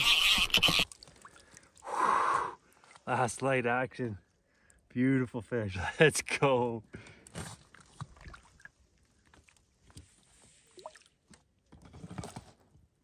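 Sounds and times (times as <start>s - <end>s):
water sloshing and splashing: 0.7s - 1.9s, 7.3s - 11.4s.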